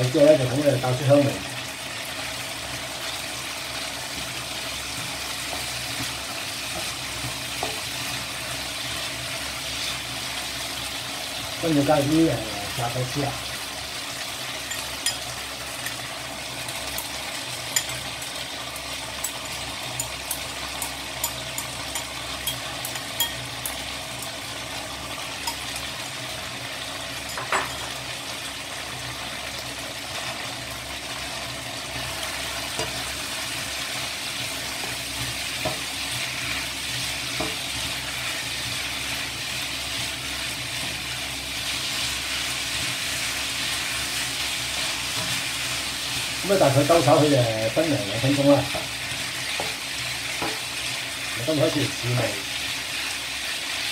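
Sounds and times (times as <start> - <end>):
food sizzling in a wok: 0.0 - 53.9
spatula stirring food: 2.0 - 11.0, 19.1 - 24.3, 31.8 - 47.1, 48.2 - 51.4.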